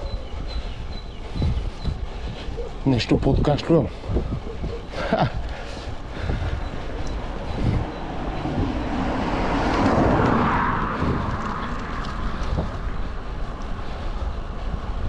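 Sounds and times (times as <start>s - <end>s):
wind buffeting microphone: 0.0s - 15.0s
car passing by: 7.2s - 13.6s.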